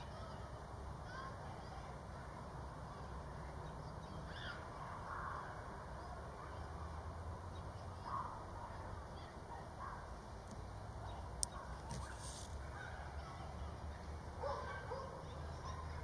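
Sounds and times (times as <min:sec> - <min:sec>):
distant bird calls: 0:03.0 - 0:06.7, 0:09.2 - 0:16.0.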